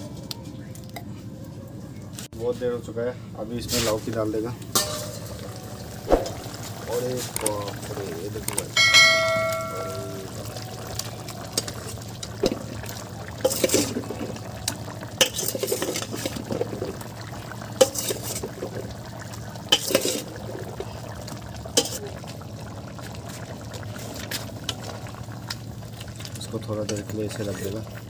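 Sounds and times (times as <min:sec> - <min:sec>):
metal ladle clinking on iron pan: 0:04.8 - 0:05.4, 0:08.8 - 0:10.2.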